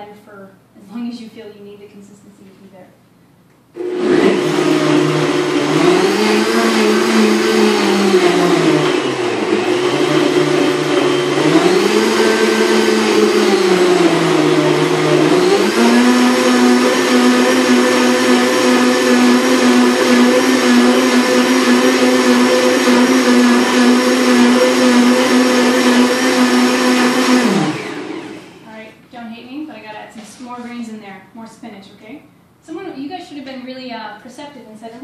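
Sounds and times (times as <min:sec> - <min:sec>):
blender motor whining: 0:03.8 - 0:28.7.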